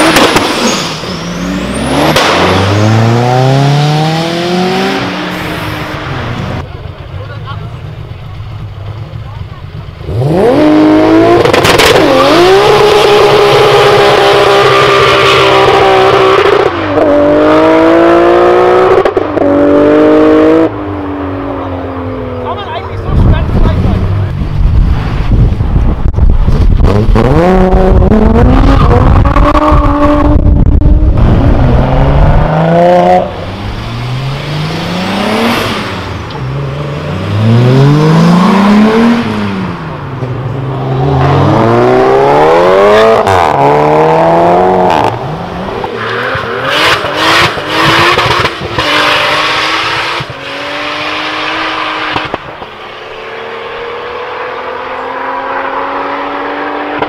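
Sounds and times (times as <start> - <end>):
car engines accelerating hard: 0.0 - 57.0.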